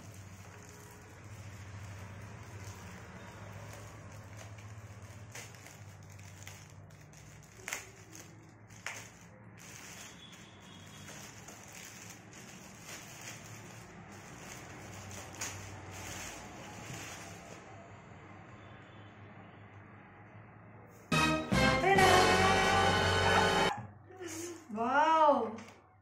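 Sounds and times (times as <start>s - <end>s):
plastic bag crinkling: 0.0s - 17.7s.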